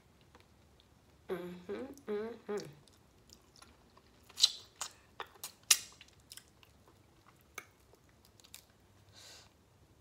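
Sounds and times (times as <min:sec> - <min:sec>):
crunchy chewing and shell peeling: 0:02.8 - 0:08.8.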